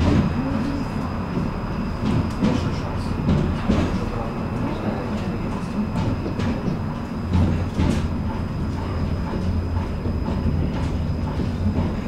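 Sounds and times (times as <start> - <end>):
tram motors and wheels rumbling: 0.0 - 12.0
wheels clacking over rail joints: 0.0 - 12.0.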